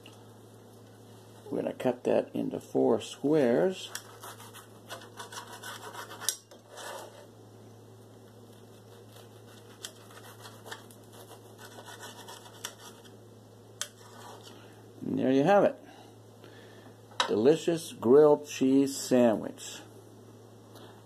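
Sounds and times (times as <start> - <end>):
knife scratching toasted bread: 3.8 - 7.3, 8.4 - 13.2, 13.8 - 14.6.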